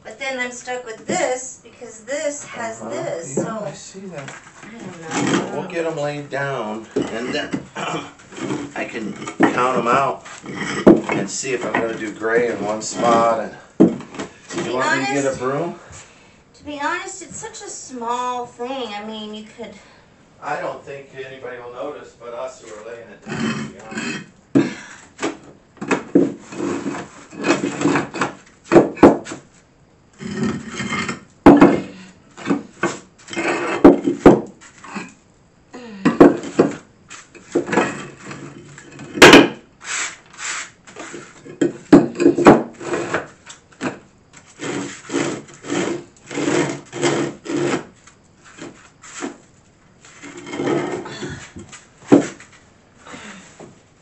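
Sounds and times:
tiles scraping on floor: 4.3s - 6.1s, 6.9s - 15.6s, 23.3s - 24.3s, 25.2s - 29.5s, 30.2s - 35.1s, 36.2s - 52.6s.

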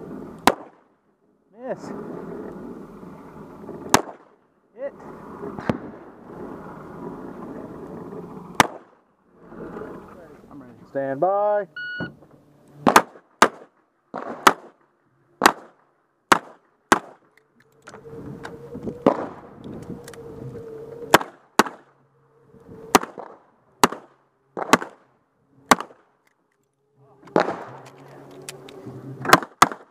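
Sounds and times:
pistol shots: 0.4s - 0.8s, 3.9s - 4.3s, 8.6s - 8.9s, 12.8s - 14.8s, 15.4s - 17.2s, 21.1s - 21.8s, 22.9s - 25.0s, 25.7s - 26.1s, 27.3s - 27.9s, 29.3s - 29.9s.

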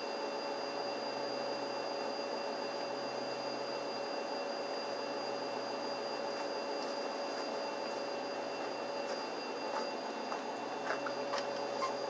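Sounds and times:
machine hum: 3.1s - 12.0s.

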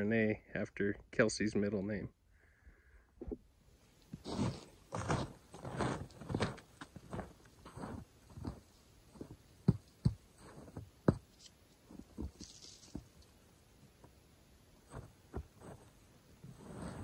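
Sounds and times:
footsteps: 4.1s - 13.2s, 14.9s - 17.0s.

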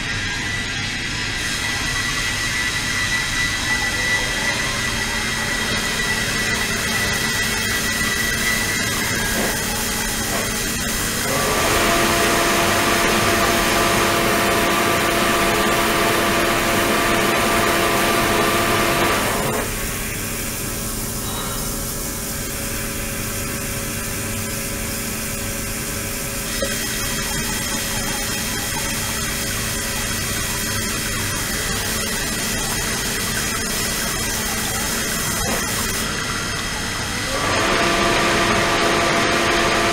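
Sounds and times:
machine whine: 0.0s - 39.9s
water running into tank: 26.4s - 36.0s.

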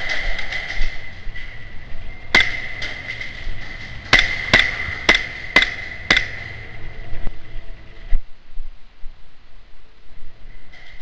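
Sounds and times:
airsoft gun shots: 2.3s - 6.7s.

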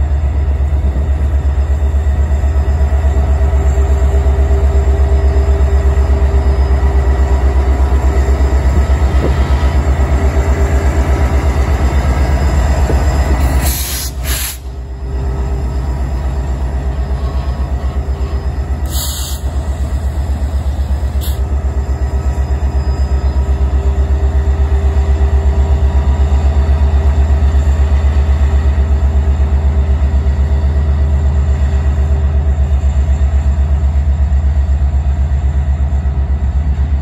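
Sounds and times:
diesel locomotive throbbing: 0.0s - 37.0s.

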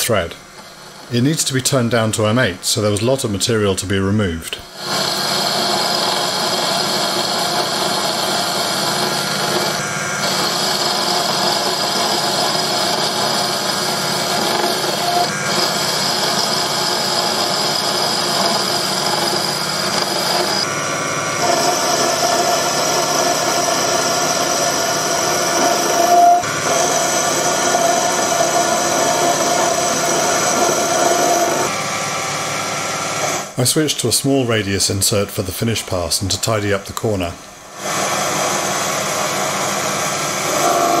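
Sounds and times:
lathe cutting steel with whine: 4.7s - 33.6s, 37.6s - 41.0s.

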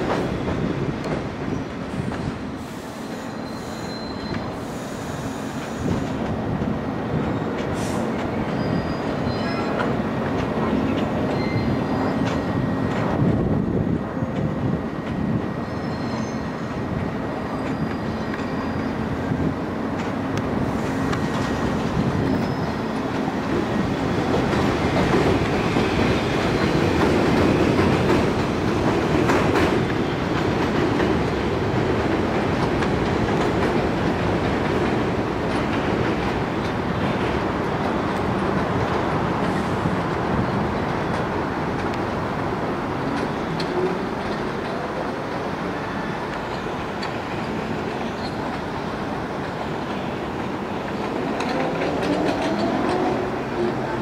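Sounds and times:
train rumbling on rails: 0.0s - 54.0s
faint wheel squeal: 3.1s - 5.9s, 7.9s - 9.8s, 11.3s - 12.2s, 15.6s - 16.5s, 17.6s - 19.1s, 22.3s - 22.9s
clickety-clack of wheels: 20.0s - 42.0s, 50.8s - 54.0s.

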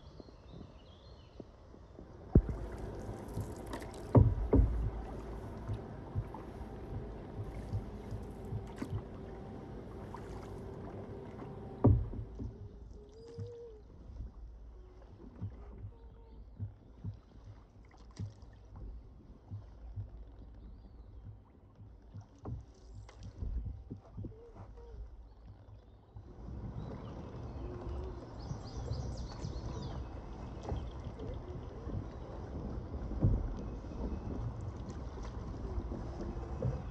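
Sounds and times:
low rumble: 2.2s - 13.1s
canoe knocks: 2.3s - 12.6s.

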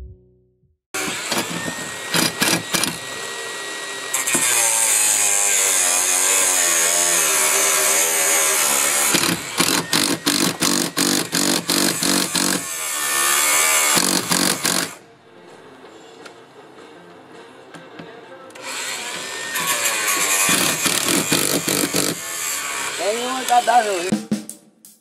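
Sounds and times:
impact driver driving screws: 1.0s - 3.1s, 4.2s - 4.7s, 8.6s - 15.0s, 19.1s - 22.8s.

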